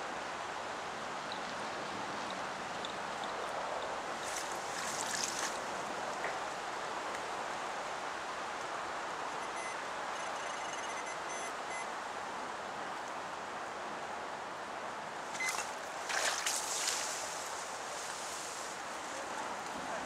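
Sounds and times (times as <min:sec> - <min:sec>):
brief rustle: 0:15.3 - 0:18.7.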